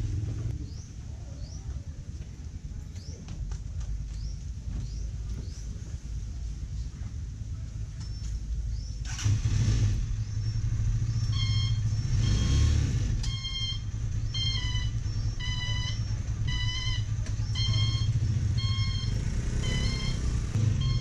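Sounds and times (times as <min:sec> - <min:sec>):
auto-rickshaw engine rumbling: 0:00.0 - 0:21.0
reversing beeper: 0:11.3 - 0:21.0.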